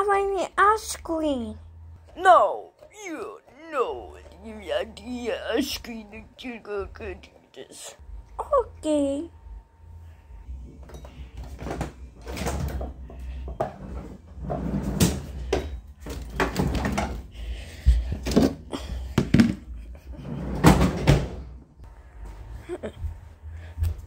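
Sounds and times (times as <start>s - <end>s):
door opening and shutting: 10.8s - 13.1s.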